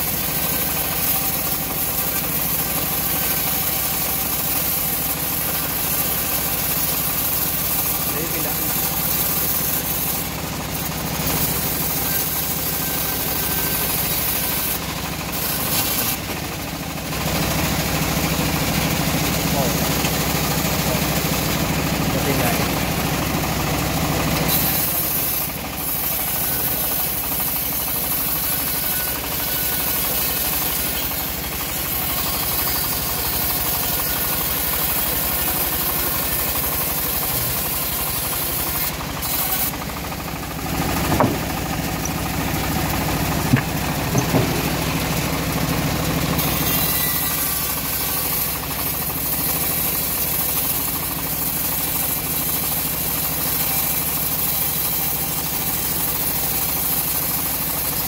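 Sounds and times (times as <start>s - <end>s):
band sawmill cutting log: 0.0s - 58.0s
wooden knocks: 41.0s - 42.2s, 43.5s - 44.7s.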